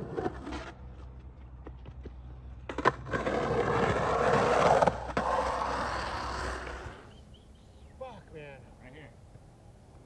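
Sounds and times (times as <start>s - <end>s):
skateboard wheels rolling on concrete: 0.0s - 7.5s
skateboard clack: 1.6s - 6.9s.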